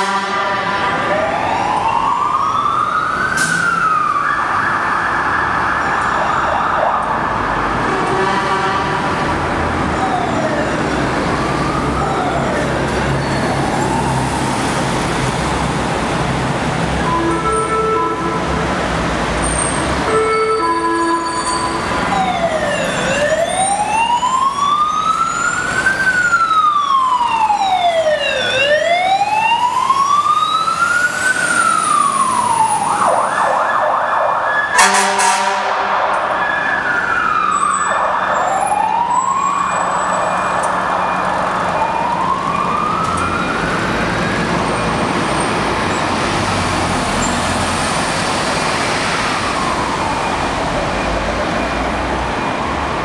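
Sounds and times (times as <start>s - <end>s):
horn blast: 0.0s - 1.0s, 7.9s - 9.4s, 17.0s - 18.8s, 34.8s - 36.2s
siren yelp: 0.0s - 9.0s, 9.8s - 14.8s, 16.8s - 18.6s, 19.4s - 45.4s, 49.1s - 53.0s
fire truck sirens wailing: 0.0s - 53.0s.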